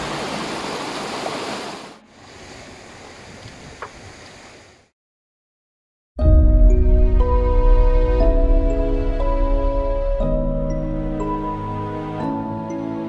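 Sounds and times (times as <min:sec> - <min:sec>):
stream rushing over rocks: 0:00.0 - 0:04.5.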